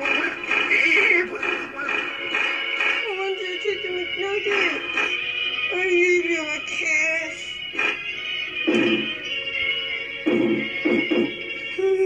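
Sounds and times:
steady high tone: 1.4 - 12.0
wavering voice-like melody: 10.5 - 12.0.

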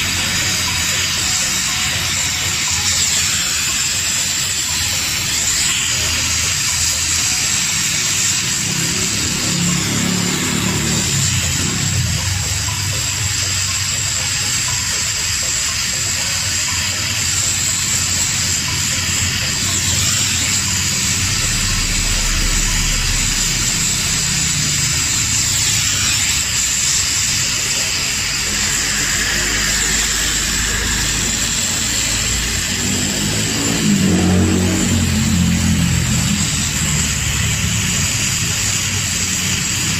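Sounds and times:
gas welding torch hissing: 0.0 - 39.9
low hum: 18.3 - 38.5.

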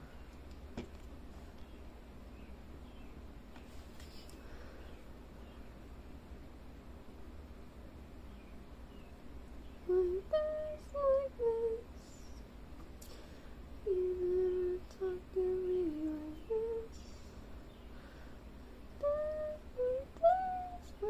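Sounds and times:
faint steady low hum: 0.0 - 21.0
person humming a tune: 9.8 - 12.4, 13.8 - 17.2, 19.0 - 21.0.

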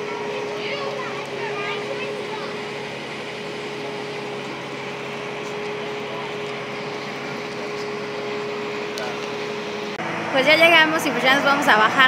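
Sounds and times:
boat engine humming: 0.0 - 12.0.

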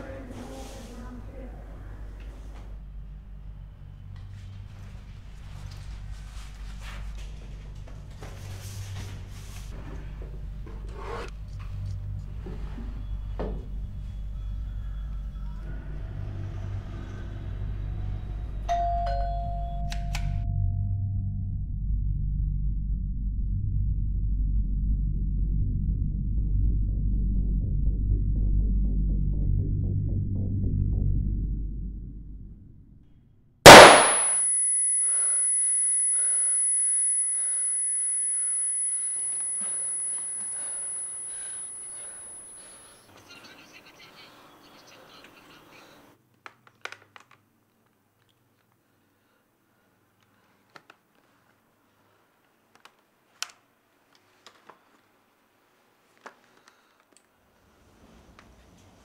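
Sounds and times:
electronic doorbell chime: 18.7 - 20.8, 34.3 - 42.8
loud pistol shot: 33.7 - 34.7
high-pitched ringing tone: 33.7 - 43.0
steady low hum: 33.7 - 43.0.

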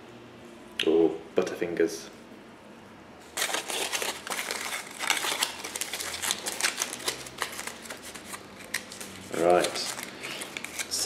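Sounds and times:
aluminium foil crinkling: 3.3 - 11.0.

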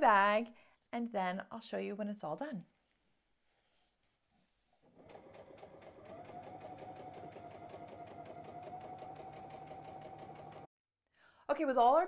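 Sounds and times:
sewing machine running: 4.9 - 10.7.

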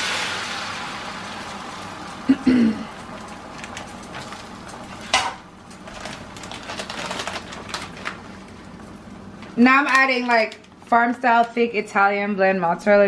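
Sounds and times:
eggs sizzling in a skillet: 0.0 - 5.6.

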